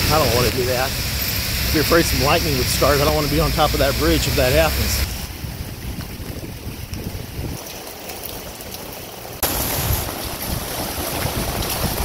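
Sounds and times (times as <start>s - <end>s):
heavy rain hiss: 0.0s - 12.0s
wind rumbling on microphone: 4.9s - 8.6s, 9.4s - 12.0s.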